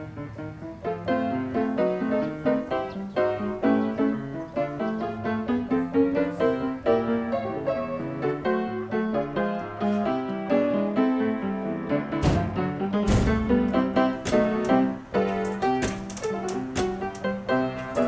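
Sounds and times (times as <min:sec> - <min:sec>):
background piano music: 0:00.0 - 0:18.0.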